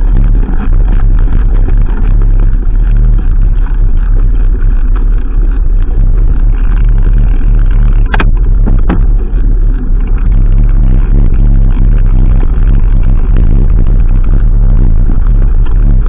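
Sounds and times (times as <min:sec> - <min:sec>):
wind buffeting microphone: 0:00.0 - 0:16.0
sharp clicks: 0:07.9 - 0:09.2.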